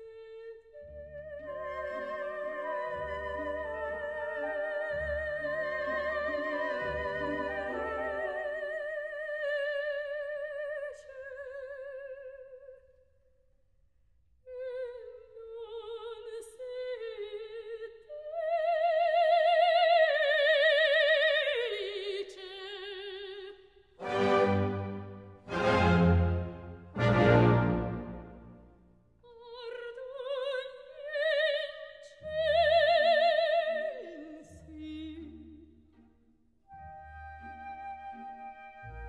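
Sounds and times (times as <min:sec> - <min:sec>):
operatic soprano singing: 0:00.0 - 0:12.8, 0:14.5 - 0:28.5, 0:29.3 - 0:35.7
low orchestral accompaniment: 0:00.8 - 0:08.8, 0:24.0 - 0:28.7, 0:36.7 - 0:39.0.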